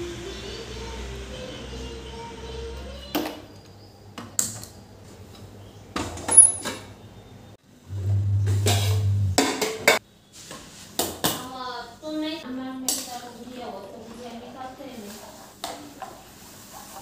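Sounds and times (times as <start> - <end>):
low hum: 7.8 - 9.5.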